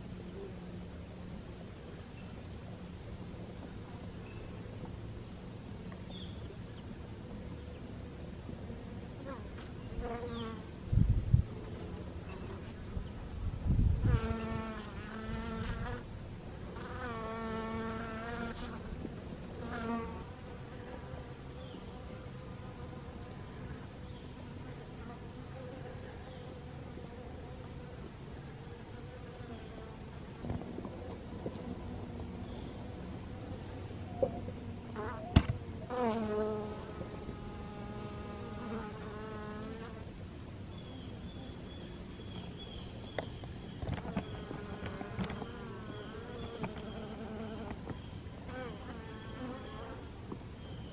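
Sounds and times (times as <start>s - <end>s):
bees buzzing past: 34.8s - 40.1s, 44.0s - 50.9s.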